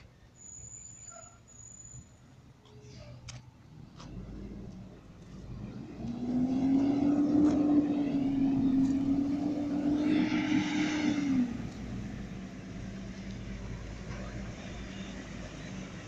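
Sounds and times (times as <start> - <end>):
garbage truck engine revving: 5.4 - 13.0.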